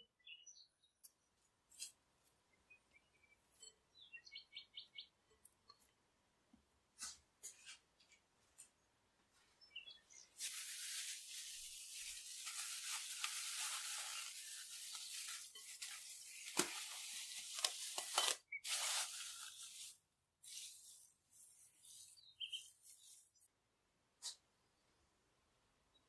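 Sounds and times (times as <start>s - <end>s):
cling film crinkling: 10.4s - 22.1s
bowl handling rustles: 10.4s - 23.4s.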